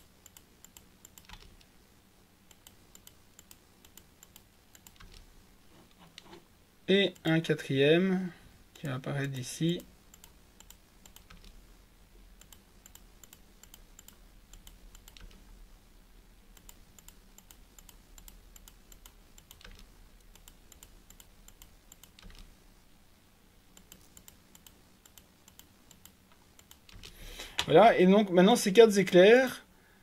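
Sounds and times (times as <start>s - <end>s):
computer mouse clicks: 0.0s - 1.7s, 2.5s - 6.4s, 9.2s - 11.6s, 12.4s - 15.5s, 16.5s - 22.6s, 23.7s - 27.7s.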